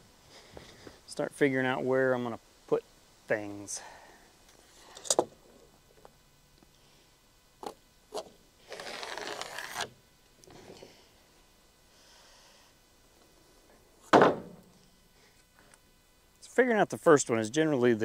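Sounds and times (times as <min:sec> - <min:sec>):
board scraping across plywood: 0:08.1 - 0:09.9.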